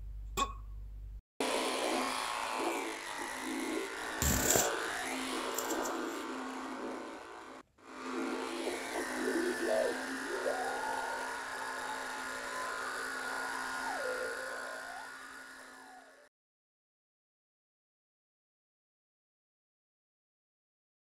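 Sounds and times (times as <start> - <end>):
fly buzzing: 1.8 - 16.0.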